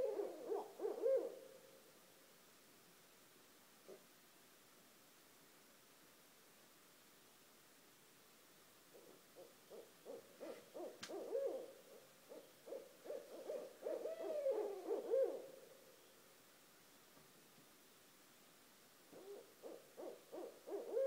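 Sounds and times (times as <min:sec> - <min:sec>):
owls hooting: 0:00.0 - 0:01.6, 0:08.9 - 0:15.7, 0:19.1 - 0:21.0.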